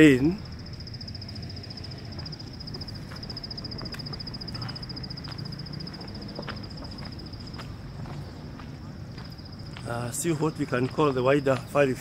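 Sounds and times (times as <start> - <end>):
insect trilling: 0.0 - 7.6
low outdoor rumble: 0.0 - 12.0.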